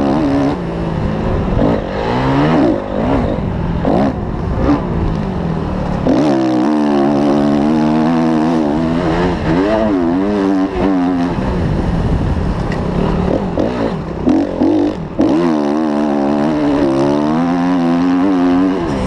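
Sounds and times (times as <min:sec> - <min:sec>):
motocross engine revving: 0:00.0 - 0:11.8, 0:12.9 - 0:19.0.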